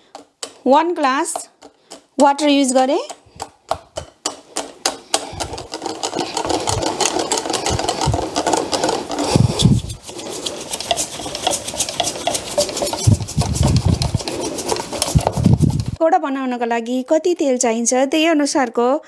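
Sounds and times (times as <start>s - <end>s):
whisk beating batter in glass bowl: 5.1s - 16.0s.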